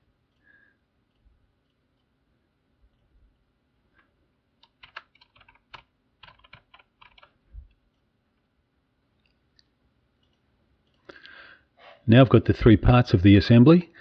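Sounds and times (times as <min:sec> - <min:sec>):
typing on computer keyboard: 0:04.6 - 0:07.8.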